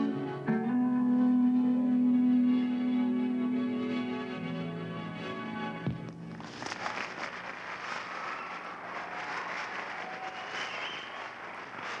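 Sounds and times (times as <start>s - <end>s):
audience clapping and cheering: 6.9s - 12.0s.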